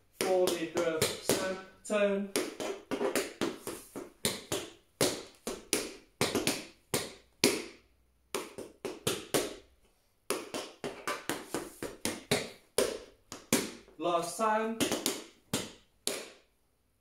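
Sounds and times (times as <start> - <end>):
tap shoes on hard floor: 0.2 - 1.7, 2.3 - 7.8, 14.8 - 16.4.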